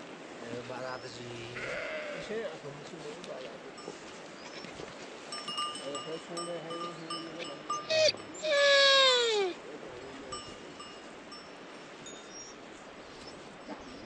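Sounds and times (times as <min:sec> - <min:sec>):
sheep bleating: 0:01.6 - 0:02.4, 0:07.9 - 0:09.6.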